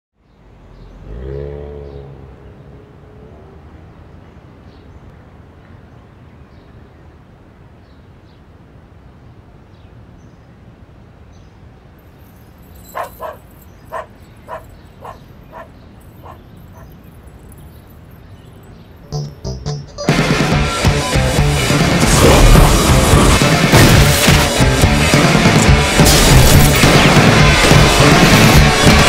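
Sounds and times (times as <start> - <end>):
street ambience hiss: 0.2 - 19.1
dog barking: 12.8 - 17.0.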